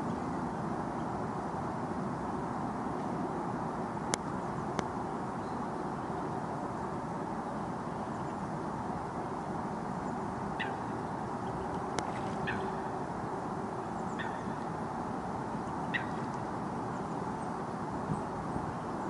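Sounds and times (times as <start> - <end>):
low background rush: 0.0 - 19.0
coot calling: 12.4 - 12.8, 15.9 - 16.2.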